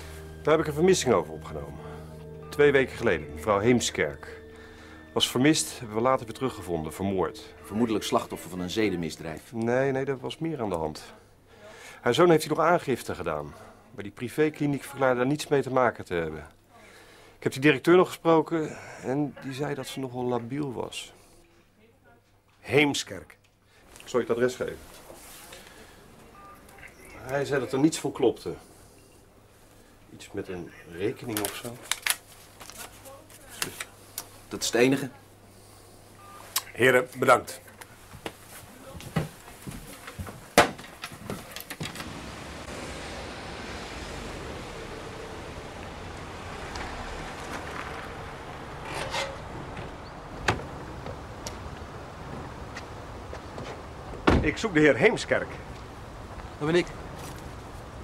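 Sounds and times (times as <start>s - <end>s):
short electronic beep: 26.3s - 27.2s, 36.2s - 36.5s
car pulling up: 41.2s - 54.7s.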